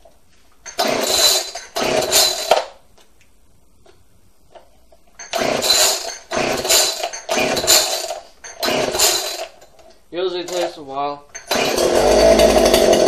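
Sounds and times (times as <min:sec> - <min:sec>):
chainsaw recoil starter pulls: 0:00.7 - 0:02.7, 0:05.2 - 0:09.7, 0:10.5 - 0:13.0.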